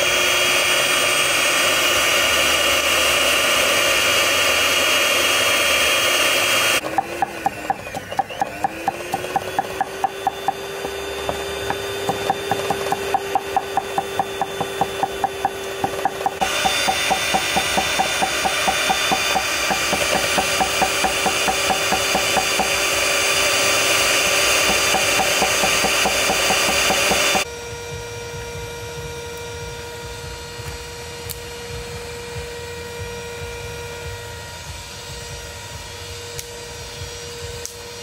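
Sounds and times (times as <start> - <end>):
electric hand mixer whirring: 0.0 - 38.0
cleaver chopping on wooden block: 6.8 - 22.9, 24.2 - 27.4.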